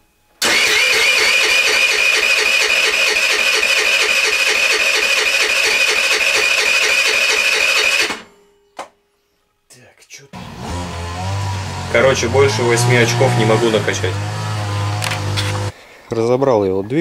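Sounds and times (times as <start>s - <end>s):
scooter engine cranking without firing: 0.4s - 8.3s, 10.4s - 15.7s.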